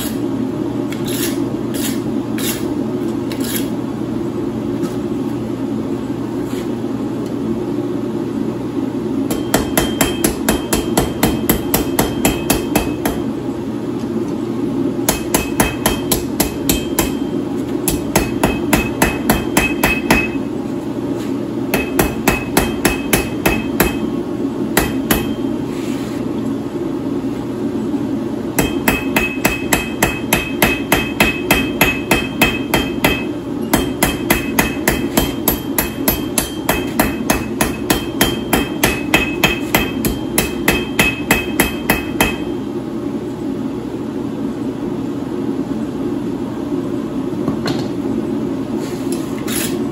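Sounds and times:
hammer ringing on anvil: 0:09.3 - 0:13.2, 0:15.1 - 0:20.5, 0:21.7 - 0:24.2, 0:24.8 - 0:25.5, 0:28.6 - 0:42.6.

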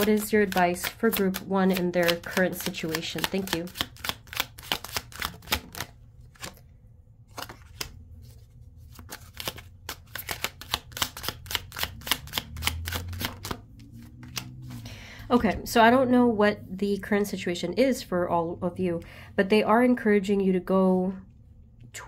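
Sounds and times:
cards being shuffled: 0:00.0 - 0:14.9.

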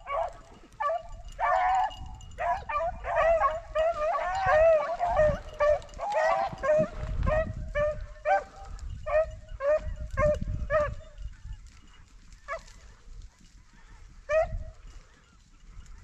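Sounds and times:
dogs barking: 0:00.0 - 0:11.2, 0:12.4 - 0:13.0, 0:14.2 - 0:14.7.

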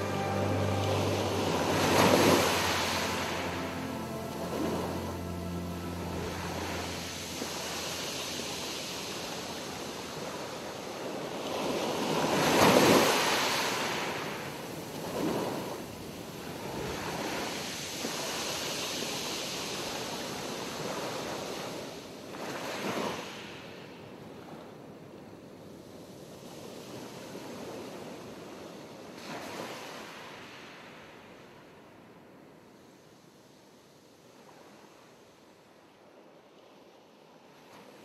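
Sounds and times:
ocean waves washing in: 0:00.0 - 0:24.0.

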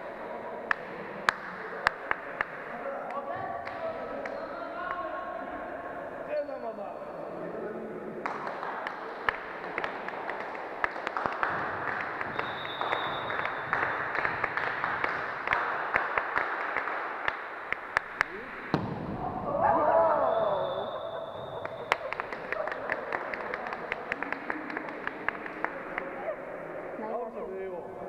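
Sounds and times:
hubbub of voices: 0:00.0 - 0:12.5, 0:18.1 - 0:28.0
ball slaps and knocks: 0:18.0 - 0:19.4
loud shout: 0:19.2 - 0:21.2.

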